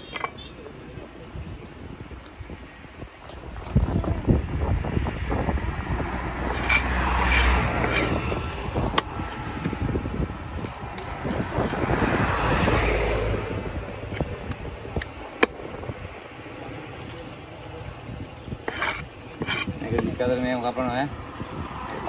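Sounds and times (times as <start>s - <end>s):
road traffic passing: 0.0s - 22.0s
knife scraping fish scales: 6.4s - 9.7s, 18.6s - 19.8s.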